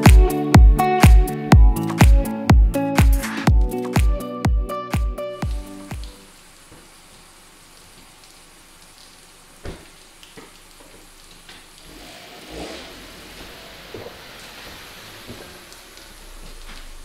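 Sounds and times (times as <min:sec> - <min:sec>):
steady hiss: 0:05.5 - 0:17.0
car rumbling on wet pavement: 0:11.0 - 0:17.0.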